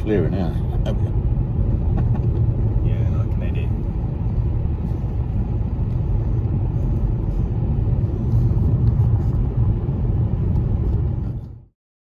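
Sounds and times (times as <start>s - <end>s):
car road and engine rumble: 0.0s - 11.8s.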